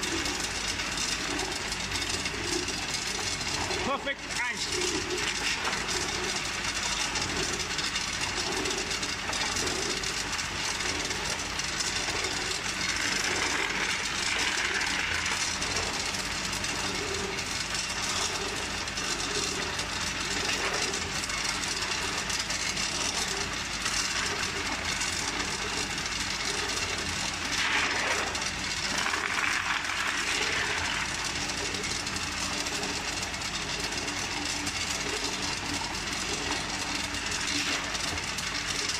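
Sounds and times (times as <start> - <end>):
ice machine running: 0.0 - 38.9
ice clattering onto plastic scoop: 27.6 - 31.3.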